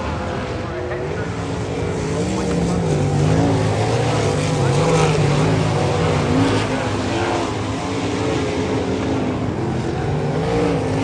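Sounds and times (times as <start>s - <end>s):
racing car engines: 0.0s - 11.0s.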